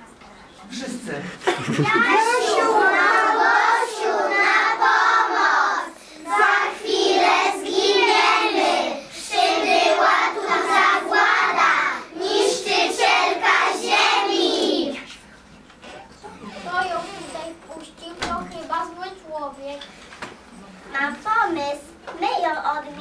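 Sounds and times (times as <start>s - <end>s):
children singing: 2.1s - 15.1s.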